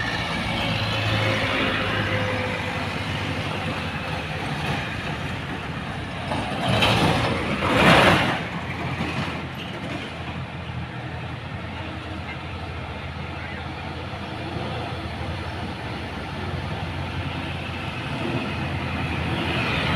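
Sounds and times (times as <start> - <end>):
heavy diesel trucks climbing: 0.0 - 19.9.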